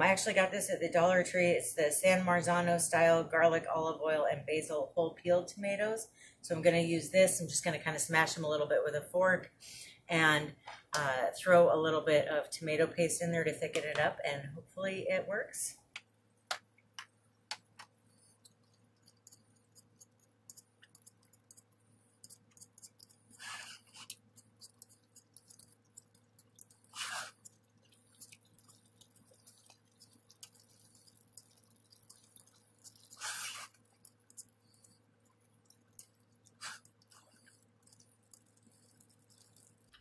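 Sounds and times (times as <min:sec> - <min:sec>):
faint steady hum: 0:00.0 - 0:40.0
fork mashing tomatoes: 0:17.6 - 0:40.0.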